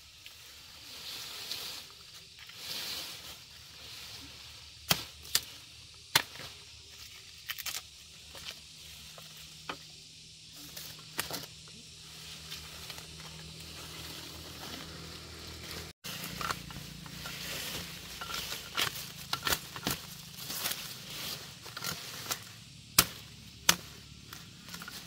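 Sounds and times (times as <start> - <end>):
blade chopping sugarcane: 6.1 - 6.5, 16.1 - 21.0, 21.7 - 25.0.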